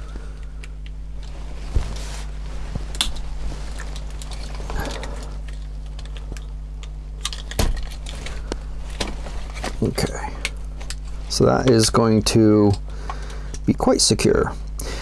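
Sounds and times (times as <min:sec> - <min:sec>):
steady low hum: 0:00.0 - 0:15.0
hands handling plastic parts: 0:00.4 - 0:11.9.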